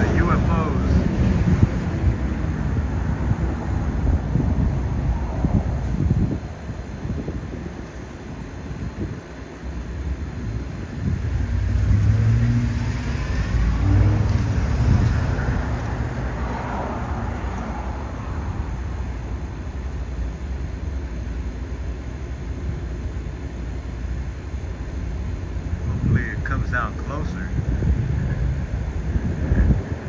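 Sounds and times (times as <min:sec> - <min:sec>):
motor vehicle passing by: 0:10.5 - 0:19.2.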